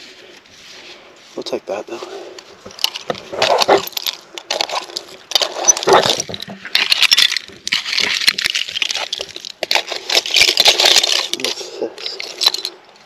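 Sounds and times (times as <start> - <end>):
hand rake scraping dirt: 0.0 - 7.1
small hard clinks: 2.7 - 13.0.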